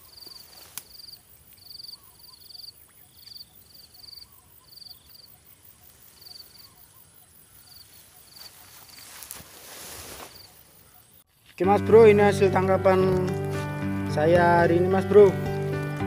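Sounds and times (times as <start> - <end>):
cricket trilling: 0.0 - 11.5.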